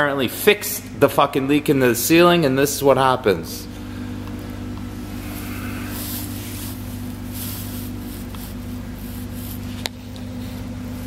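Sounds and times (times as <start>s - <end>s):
low mechanical hum: 0.0s - 11.0s
soft rustles: 3.7s - 11.0s
hiss: 5.3s - 9.8s.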